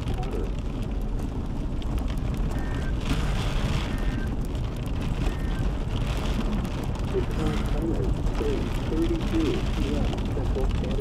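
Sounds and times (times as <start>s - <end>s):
tyres and engine rumble: 0.0s - 11.0s
wind: 0.0s - 11.0s.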